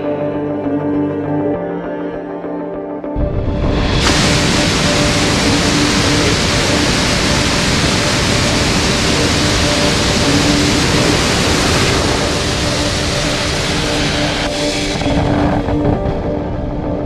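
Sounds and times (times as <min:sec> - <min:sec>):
rocket motor exhaust hissing: 0:03.2 - 0:15.9.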